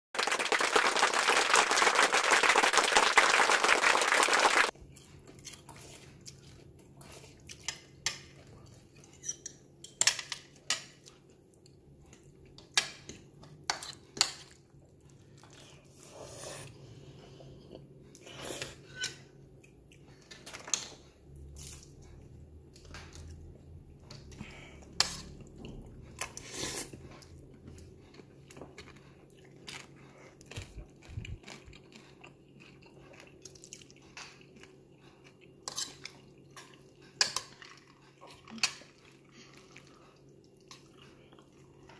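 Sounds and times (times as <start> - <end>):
chewing: 4.7 - 9.6, 19.5 - 41.9.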